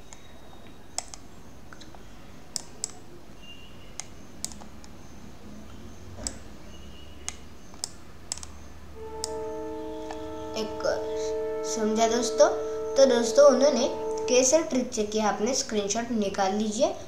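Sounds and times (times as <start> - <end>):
faint low hum: 0.0 - 17.0
stylus clicking on screen: 4.0 - 4.7.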